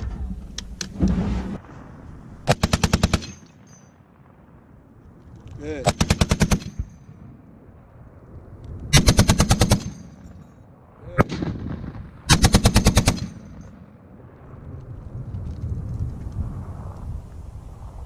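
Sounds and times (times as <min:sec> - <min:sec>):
machine gun firing bursts: 0:02.5 - 0:03.5, 0:05.8 - 0:06.9, 0:08.9 - 0:10.2, 0:12.3 - 0:13.6.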